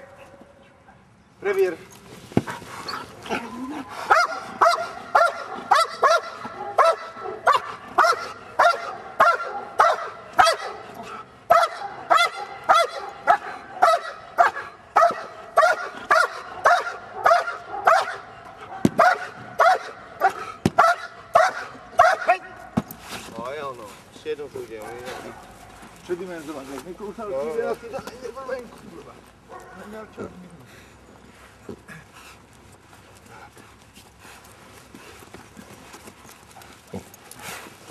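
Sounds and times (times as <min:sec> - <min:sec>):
dog barking rhythmically: 0:04.1 - 0:10.9, 0:11.5 - 0:22.4.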